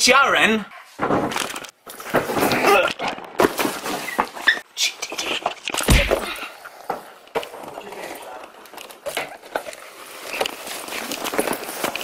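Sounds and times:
men grunting and crying out: 2.4s - 3.3s, 5.8s - 6.6s.

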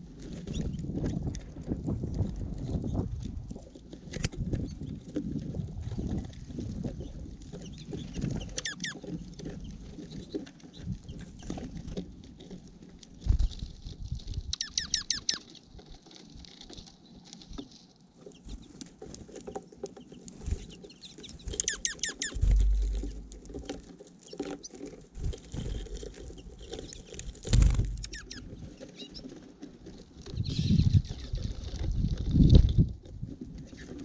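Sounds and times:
birds pecking seed: 0.0s - 34.0s
high chattering bird calls: 7.6s - 9.0s, 14.5s - 15.5s, 20.9s - 23.3s, 27.8s - 29.3s
wing thumps and landings: 22.3s - 23.3s, 27.4s - 28.2s.

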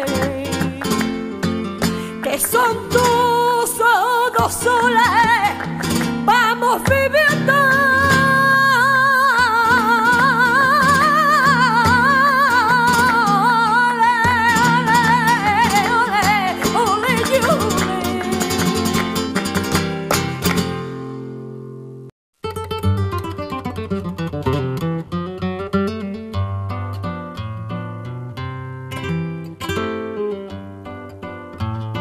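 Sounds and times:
person singing: 0.0s - 19.2s
plucked acoustic guitar: 0.0s - 32.0s.

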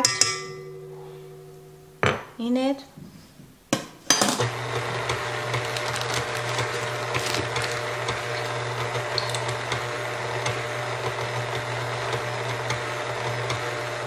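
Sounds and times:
stand mixer motor humming: 4.4s - 14.0s.

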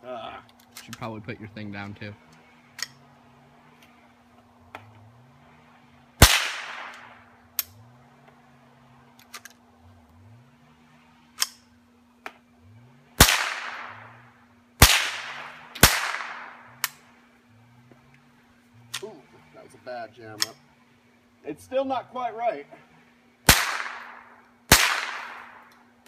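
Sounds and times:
rifle shots echoing: 6.2s - 7.4s, 13.2s - 17.0s, 23.4s - 25.7s.

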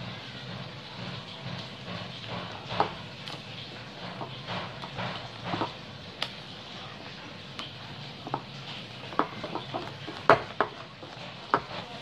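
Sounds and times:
whisk stirring thick dough: 0.0s - 12.0s
whisk knocking against bowl: 1.6s - 3.2s, 3.9s - 5.9s, 7.7s - 12.0s.

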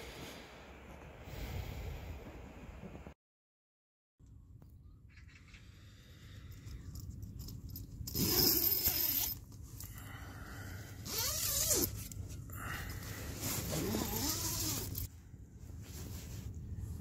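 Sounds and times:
tent zipper being pulled open: 8.0s - 9.4s, 11.0s - 12.1s, 13.3s - 15.1s.

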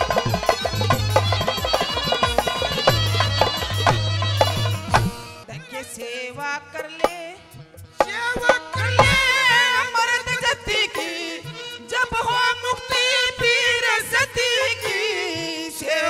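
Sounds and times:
hand drums: 0.0s - 5.4s, 7.8s - 9.7s
heavy low drum stroke: 0.0s - 5.4s
wavering melody line: 0.0s - 5.5s.

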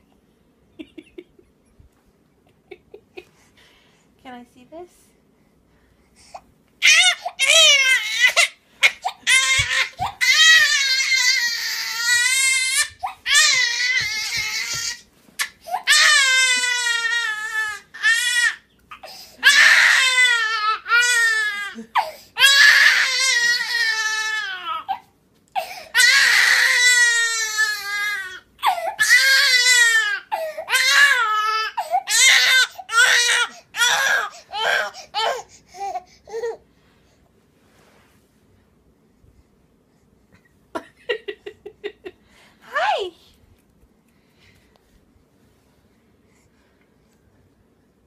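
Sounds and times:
infant crying: 6.8s - 36.6s.

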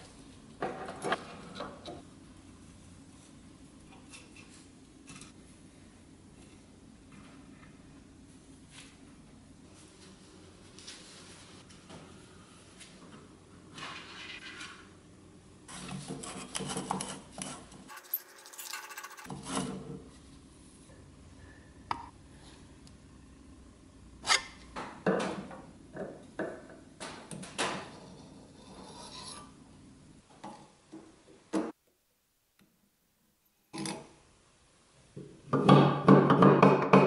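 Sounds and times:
metal parts scraping and clinking: 17.9s - 19.3s.

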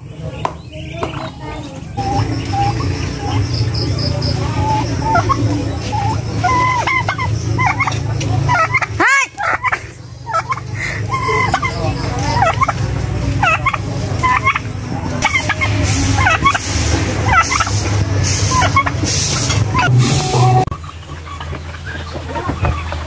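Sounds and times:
turkey gobbling: 2.0s - 23.0s.

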